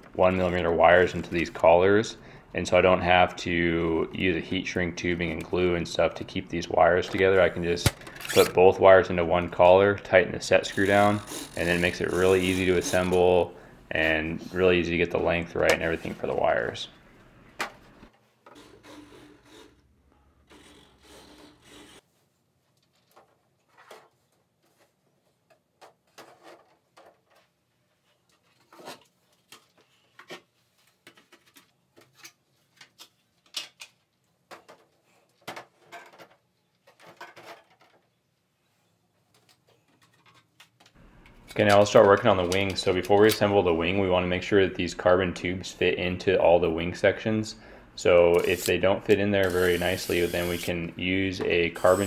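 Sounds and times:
plastic parts rubbing and tapping: 0:22.7 - 0:38.3, 0:39.2 - 0:43.4.

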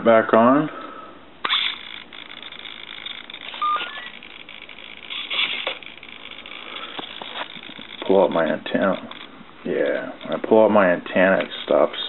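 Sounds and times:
servo buzz: 0:01.4 - 0:10.4
rising short beeps: 0:03.6 - 0:04.2.

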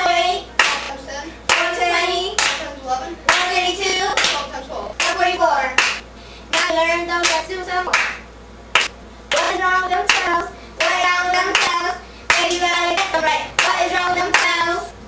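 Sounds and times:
children singing together: 0:00.0 - 0:05.6, 0:09.3 - 0:14.9
hand claps: 0:00.6 - 0:00.9, 0:01.5 - 0:01.8, 0:02.4 - 0:02.7, 0:04.1 - 0:04.4, 0:05.8 - 0:08.2, 0:08.8 - 0:14.6.

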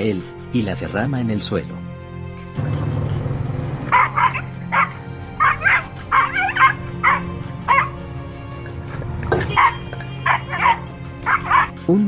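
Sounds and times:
background music: 0:00.0 - 0:12.0
puppy yapping: 0:03.8 - 0:08.0, 0:09.4 - 0:11.7.

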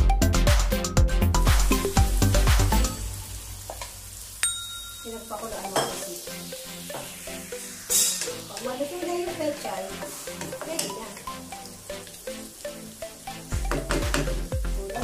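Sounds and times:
food sizzling in a wok: 0:01.5 - 0:15.0
faint background music: 0:05.0 - 0:15.0
broth being poured: 0:11.2 - 0:14.6.

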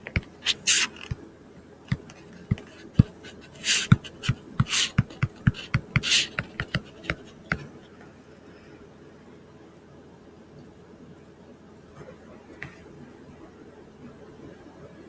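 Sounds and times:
stylus tapping on tablet: 0:00.0 - 0:01.2, 0:01.9 - 0:07.7
stylus scratchy swishes: 0:00.3 - 0:01.2, 0:02.6 - 0:07.4.

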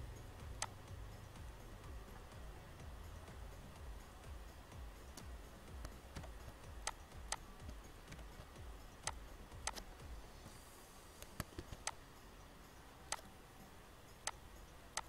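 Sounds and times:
faint low hum: 0:00.0 - 0:15.0
mouse and keyboard clicks: 0:05.2 - 0:09.9, 0:11.2 - 0:12.0, 0:13.1 - 0:13.3, 0:14.2 - 0:14.4.

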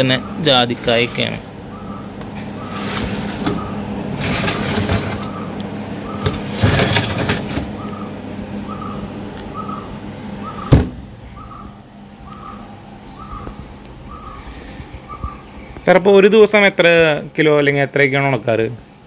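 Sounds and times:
steady low hum: 0:00.0 - 0:19.0
metal trays scraping on runners: 0:02.6 - 0:05.4, 0:06.3 - 0:07.7.

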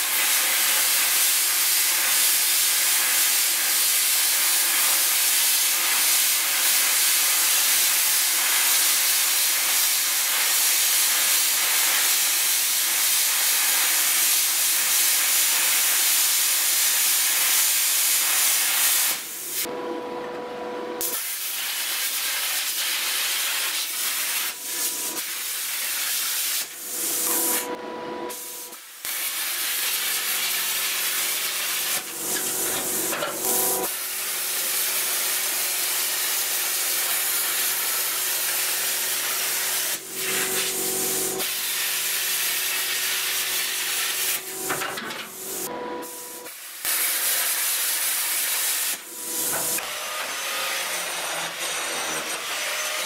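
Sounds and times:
plasma cutter hissing: 0:00.0 - 0:19.7, 0:21.0 - 0:51.6.

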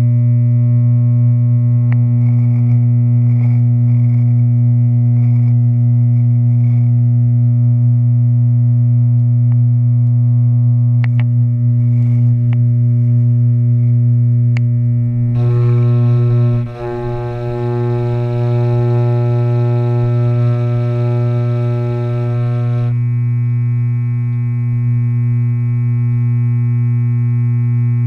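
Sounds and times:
electric hair clippers buzzing: 0:15.3 - 0:23.0.

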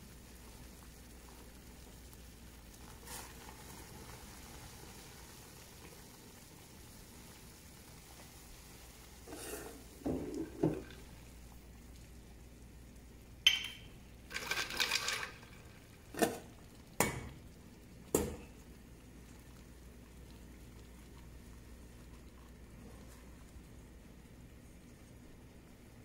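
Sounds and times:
spoon and dishes clinking: 0:13.5 - 0:13.9.

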